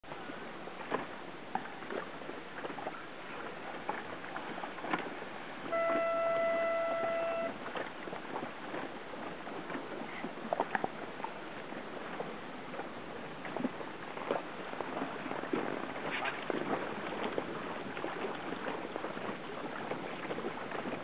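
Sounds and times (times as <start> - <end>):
water splashes and knocks: 0.0 - 21.0
wind and water hiss: 0.0 - 21.0
horn signal: 5.7 - 7.6.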